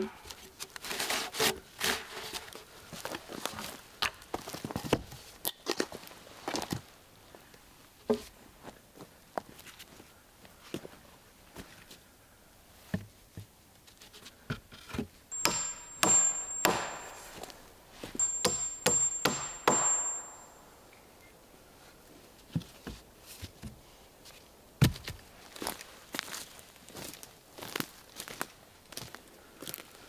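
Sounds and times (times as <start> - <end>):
hatchet striking wood: 15.4 - 20.7
faint high ring: 15.4 - 21.3.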